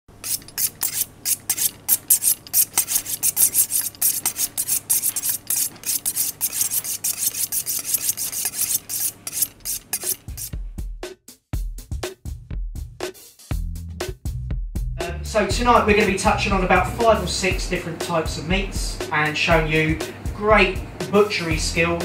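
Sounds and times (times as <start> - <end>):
knife sharpened on steel: 0.1 - 10.6.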